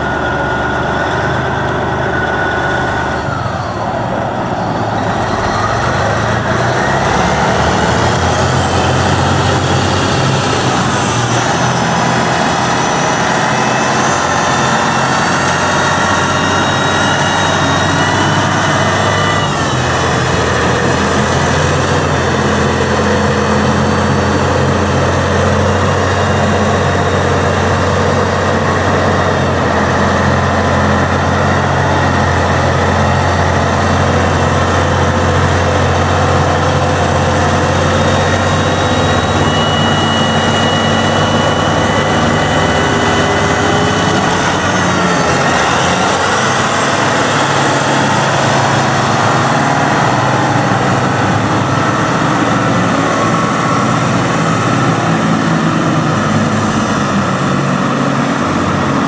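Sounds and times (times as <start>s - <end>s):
diesel engines droning: 0.0s - 59.0s
faint high whines: 36.1s - 53.8s.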